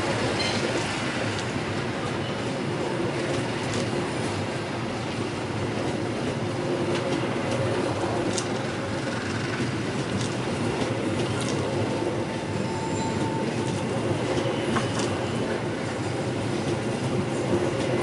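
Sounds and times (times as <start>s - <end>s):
train wheels rumbling on rail: 0.0s - 18.0s
faint wheel squeal: 12.6s - 13.7s.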